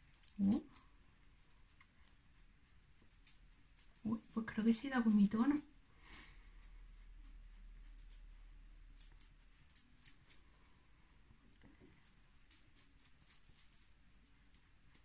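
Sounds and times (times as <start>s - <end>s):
makeup sponge dabbing skin: 3.6s - 5.7s.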